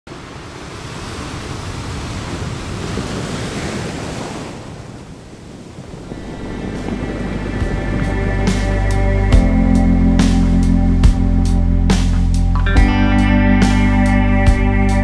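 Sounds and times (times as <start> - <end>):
ocean wave washing in: 0.1 - 12.3
soft music: 6.2 - 15.0.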